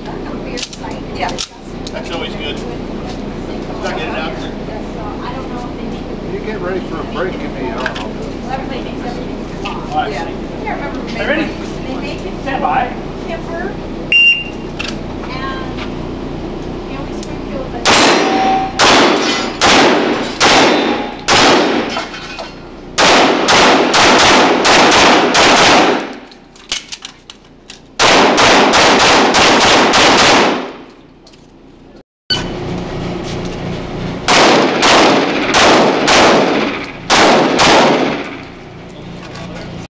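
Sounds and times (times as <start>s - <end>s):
rapid pistol fire echoing indoors: 17.8s - 21.9s, 23.0s - 26.2s, 28.0s - 30.8s, 34.3s - 38.4s.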